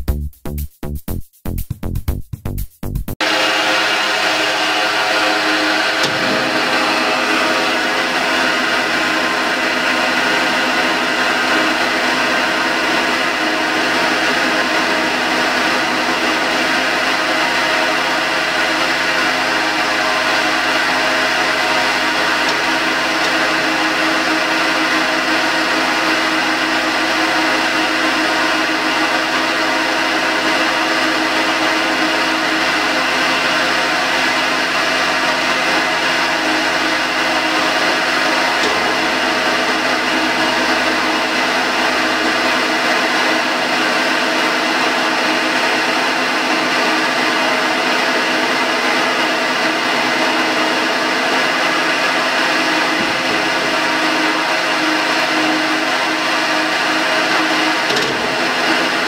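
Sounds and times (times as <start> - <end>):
grinder motor hum: 3.2 - 59.0.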